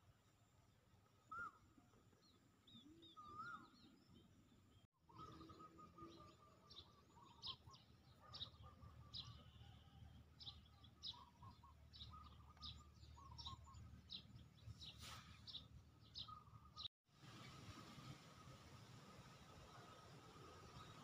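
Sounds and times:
small birds chirping: 2.2s - 18.2s.

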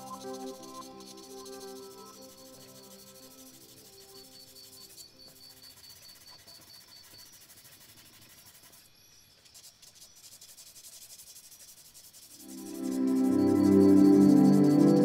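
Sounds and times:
background music: 0.0s - 4.3s, 12.4s - 15.0s
charcoal pencil scratching paper: 0.0s - 15.0s.

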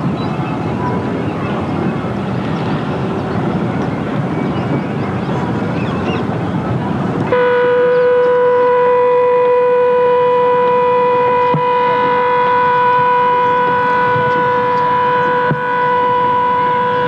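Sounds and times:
steady buzzy tone: 7.3s - 17.0s.

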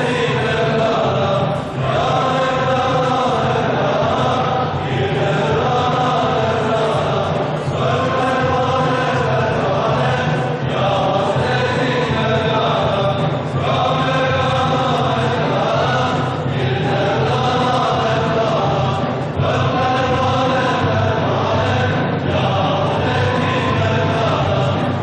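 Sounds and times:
men chanting together: 0.0s - 25.0s.

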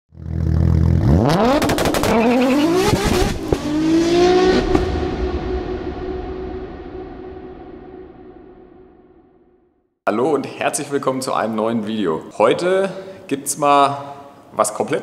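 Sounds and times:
engine idling and revving: 0.1s - 5.1s.

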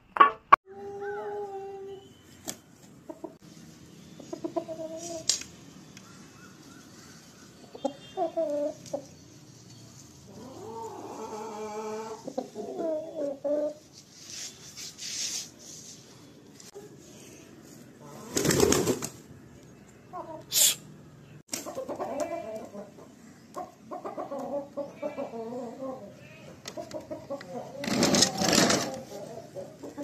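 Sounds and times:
rooster clucking: 21.6s - 30.0s.

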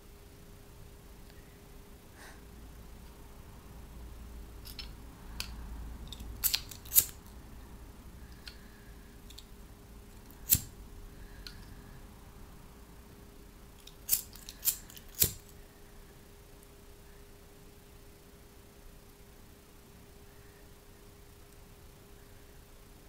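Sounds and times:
faint steady hum: 0.0s - 23.0s
lighter clicking: 4.7s - 7.2s, 10.4s - 10.7s, 13.9s - 15.5s.

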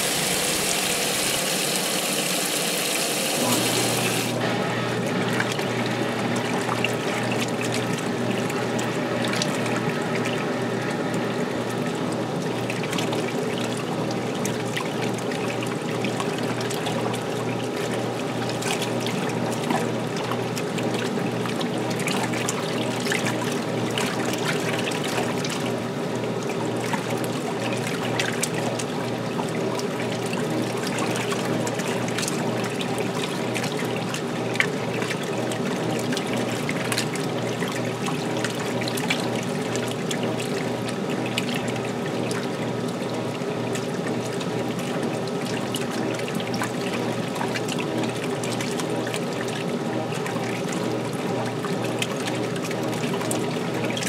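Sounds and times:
water pouring and splashing: 0.0s - 4.4s, 5.0s - 54.0s
washing machine hum: 0.0s - 54.0s.

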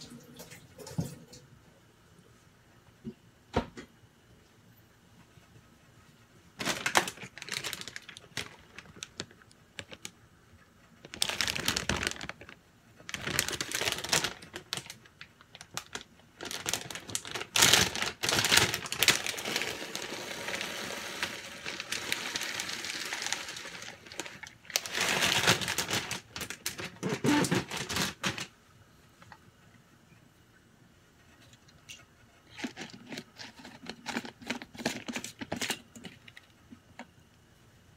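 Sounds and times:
plastic bag crinkling: 6.6s - 10.2s, 10.9s - 28.5s, 32.5s - 37.1s.

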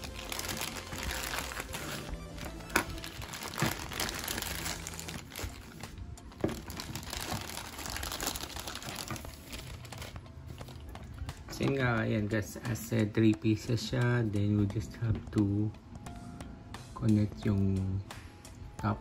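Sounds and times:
plastic bags crinkling: 0.0s - 11.7s
background music: 0.0s - 19.0s.

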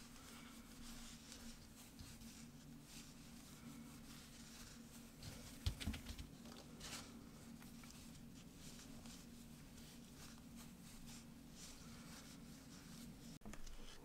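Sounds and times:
yarn rustling with crochet hook: 0.0s - 14.0s
soft knocks and thumps: 5.5s - 6.3s.

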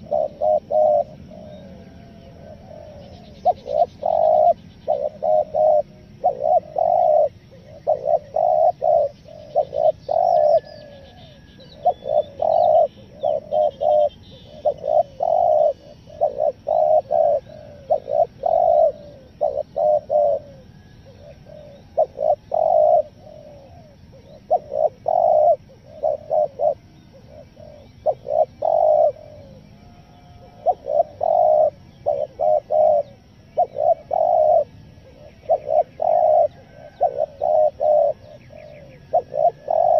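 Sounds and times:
dove cooing: 0.0s - 39.9s
small birds chirping: 0.0s - 39.9s.

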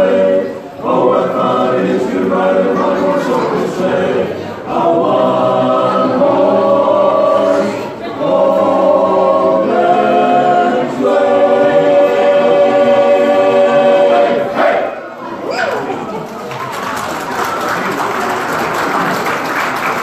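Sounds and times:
men's chorus singing a cappella: 0.0s - 14.9s.

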